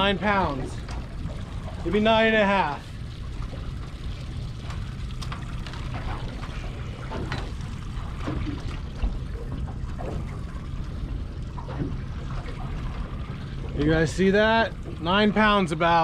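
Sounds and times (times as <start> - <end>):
steady low rumble: 0.0 - 16.0
water lapping against boat hull: 0.0 - 16.0
light knocks and rattles: 2.6 - 15.3.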